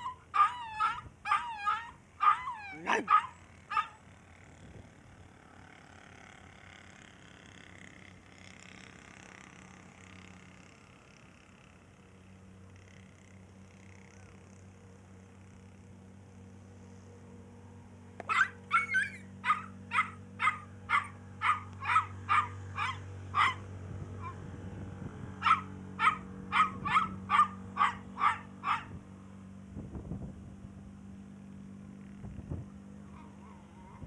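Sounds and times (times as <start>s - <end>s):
puppy yapping: 0.0s - 4.0s, 18.2s - 23.6s, 25.4s - 29.0s, 33.1s - 34.0s.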